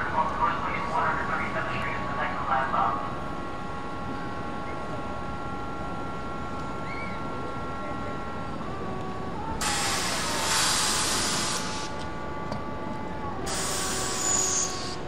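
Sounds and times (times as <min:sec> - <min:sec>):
subway train whine: 0:00.0 - 0:15.0
compressed air hiss: 0:09.6 - 0:11.9, 0:13.5 - 0:15.0.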